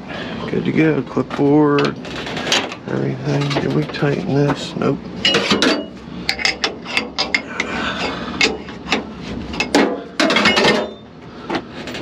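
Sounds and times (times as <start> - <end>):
metal fitting clanking: 5.2 - 11.1.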